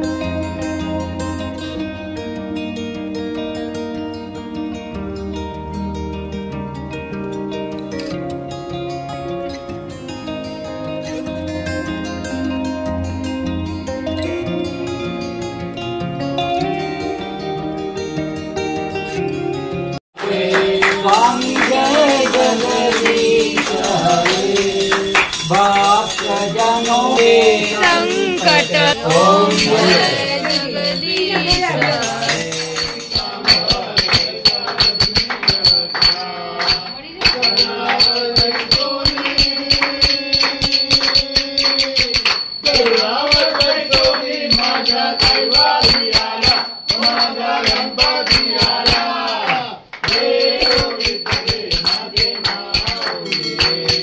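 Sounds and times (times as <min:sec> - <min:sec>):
group singing devotional song: 0:20.2 - 0:54.0
rhythmic hand clapping: 0:20.2 - 0:54.0.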